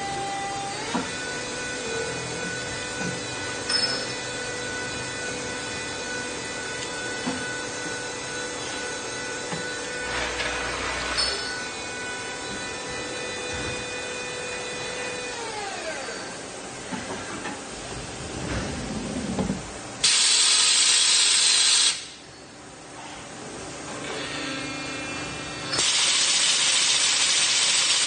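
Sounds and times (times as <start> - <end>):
lathe whine: 0.0 - 20.0.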